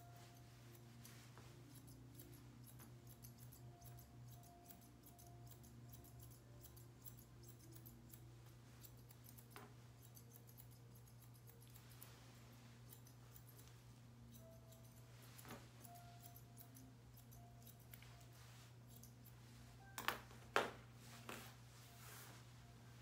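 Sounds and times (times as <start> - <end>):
scissors snipping: 1.6 - 12.0.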